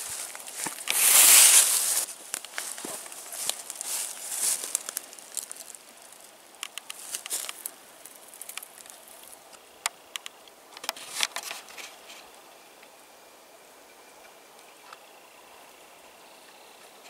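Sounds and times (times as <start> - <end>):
dry plant material crackling: 0.0 - 12.3
faint hiss: 0.0 - 17.0.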